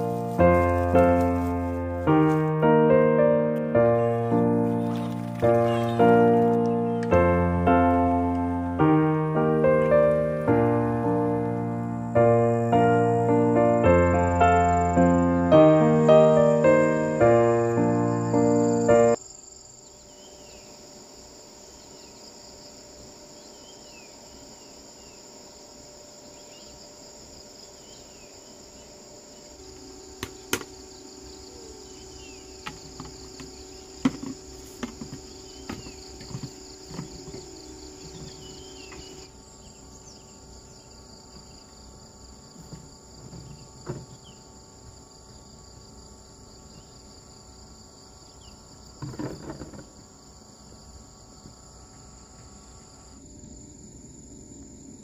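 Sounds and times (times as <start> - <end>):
insects trilling: 0.0 - 55.0
bird chirps: 35.2 - 41.6.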